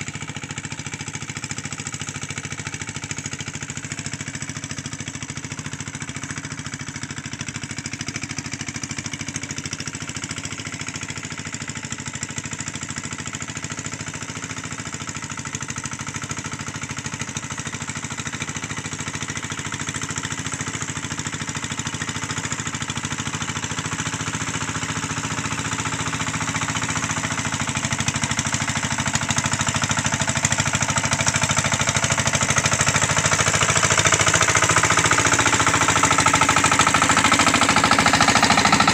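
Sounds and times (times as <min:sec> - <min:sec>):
hand tractor engine running: 0:23.7 - 0:38.9.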